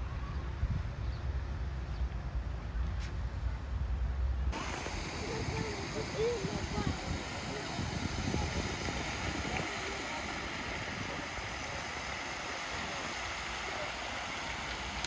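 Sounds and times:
fountain jets spraying water: 0:04.5 - 0:15.0.

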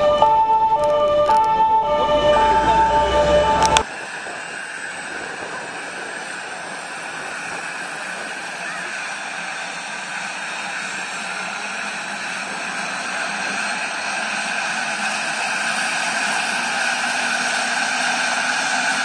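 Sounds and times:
helicopter engines whining: 0:00.0 - 0:03.8.

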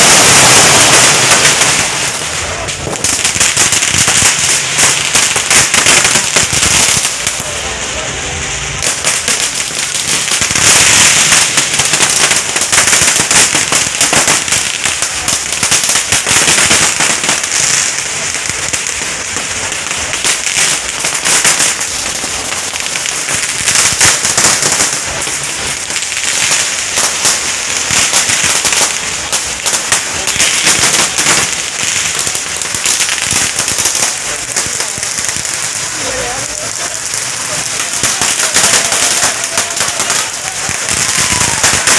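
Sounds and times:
firecrackers rapid bangs: 0:00.0 - 0:41.9
voices: 0:01.2 - 0:10.6, 0:28.6 - 0:41.9.

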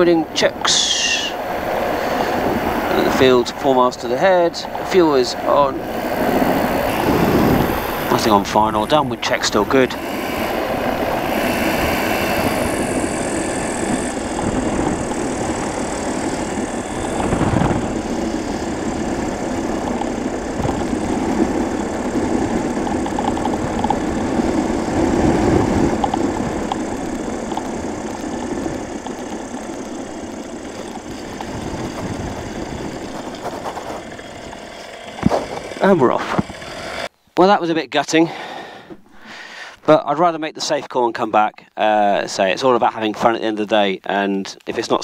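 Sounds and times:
microlight engine and propeller: 0:00.0 - 0:37.1
air rushing past: 0:04.7 - 0:28.1.

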